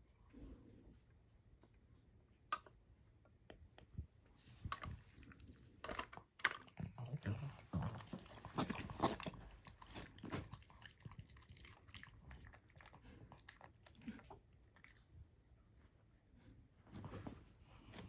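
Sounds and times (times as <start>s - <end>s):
dog crunching vegetables: 5.2s - 15.0s.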